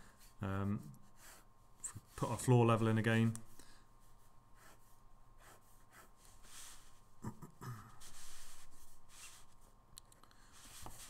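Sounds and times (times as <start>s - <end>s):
pen scratching on paper: 4.6s - 6.9s.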